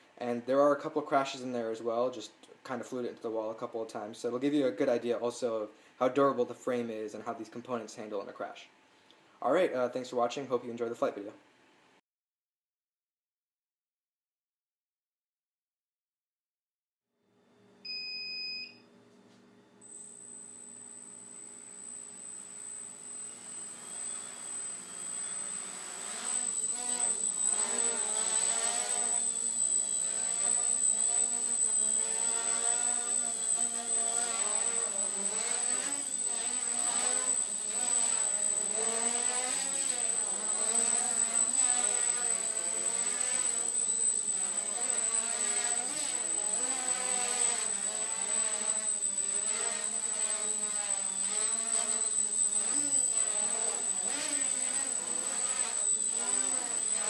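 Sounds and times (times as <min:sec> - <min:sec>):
short beep: 0:17.9 - 0:18.8
high-pitched whine: 0:19.9 - 0:57.0
drone motors buzzing: 0:20.1 - 0:57.0.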